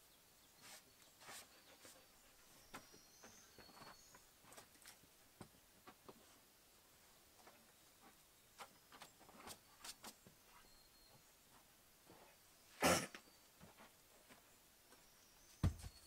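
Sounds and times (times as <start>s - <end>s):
footsteps: 13.6s - 16.0s
log thumping down: 15.6s - 16.0s
logs knocking while stacked: 15.6s - 16.0s.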